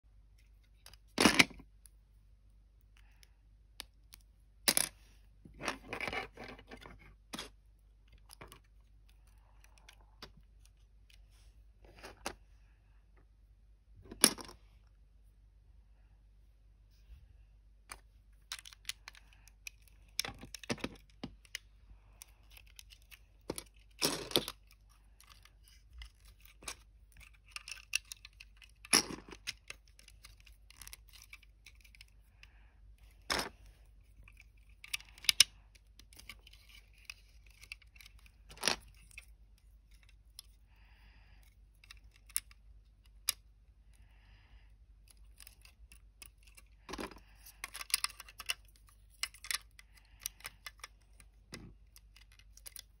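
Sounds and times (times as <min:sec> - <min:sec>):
plastic toy bricks clicking: 0:17.9 - 0:21.6, 0:22.2 - 0:32.4, 0:34.2 - 0:40.5, 0:41.6 - 0:43.5, 0:45.0 - 0:53.0.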